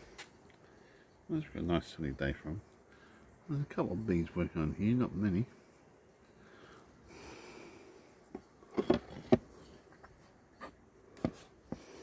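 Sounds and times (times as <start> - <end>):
taps and knocks on wooden box: 8.3 - 9.6, 11.2 - 11.9.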